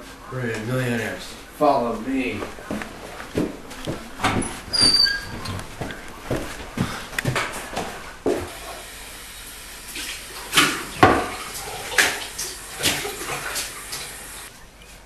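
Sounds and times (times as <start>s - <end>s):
tap water running into pan: 8.5s - 14.5s.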